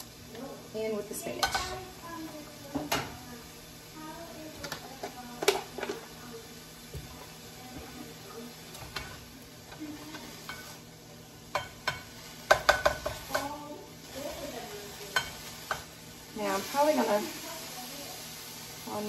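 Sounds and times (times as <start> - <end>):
vegetables sizzling in frying pan: 0.0 - 19.0
spatula scraping pan: 1.2 - 3.2, 8.7 - 10.8.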